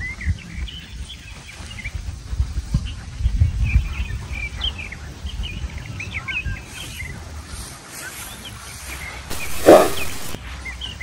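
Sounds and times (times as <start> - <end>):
wind rumble on microphone: 0.0 - 11.0
small birds chirping: 2.8 - 11.0.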